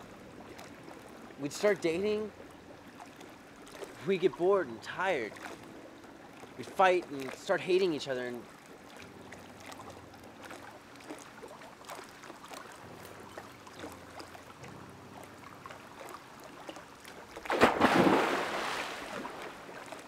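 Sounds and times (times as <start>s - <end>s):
water splashing and falling back: 2.8s - 20.0s
person jumping into pool splash: 17.4s - 19.6s.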